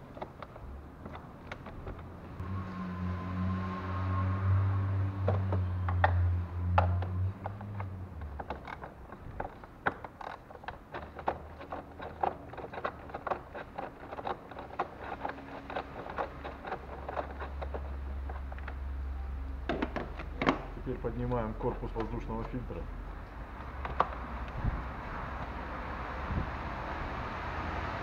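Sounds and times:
screwdriver clicking on fasteners: 0:05.4 - 0:18.9.

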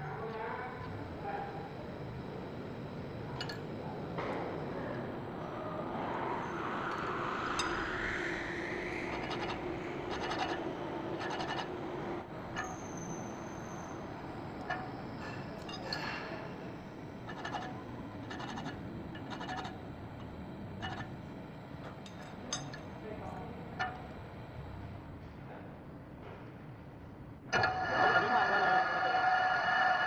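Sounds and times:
metal tools clicking and scraping: 0:03.4 - 0:03.7, 0:14.6 - 0:16.3, 0:21.8 - 0:23.0
rising whine: 0:04.2 - 0:15.9.

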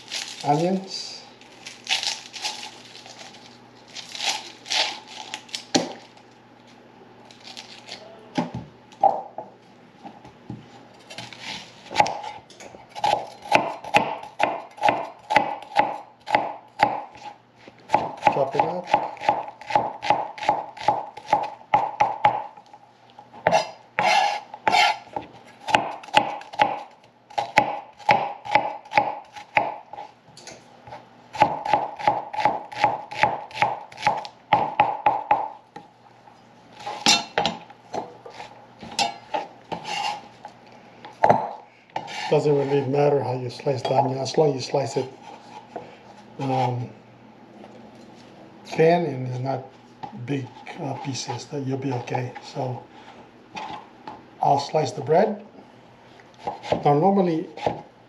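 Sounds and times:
onion skin crinkling: 0:00.0 - 0:08.1
knife chopping on plastic board: 0:13.0 - 0:17.3, 0:23.5 - 0:30.0, 0:31.4 - 0:35.6, 0:57.6 - 0:57.8.

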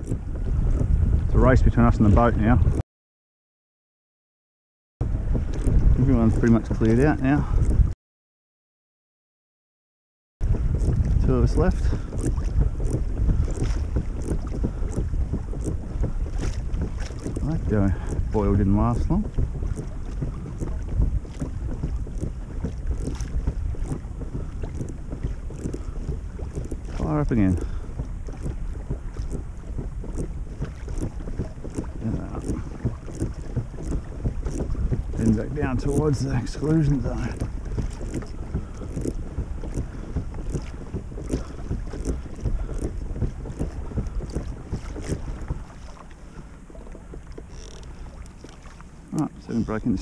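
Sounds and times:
water slapping against kayak hull: 0:00.0 - 0:02.8, 0:05.0 - 0:08.0, 0:10.4 - 0:50.0
wind on microphone: 0:00.0 - 0:02.8, 0:05.0 - 0:08.0, 0:10.4 - 0:50.0
small splashes: 0:10.7 - 0:50.0.

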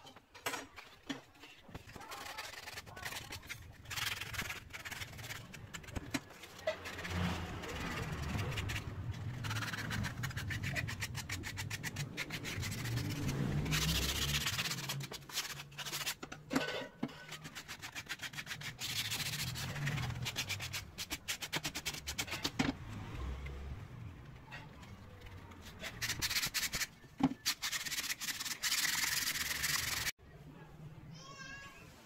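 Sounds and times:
sandpaper rubbing on wood: 0:01.9 - 0:16.2, 0:17.3 - 0:22.5, 0:25.6 - 0:30.1.

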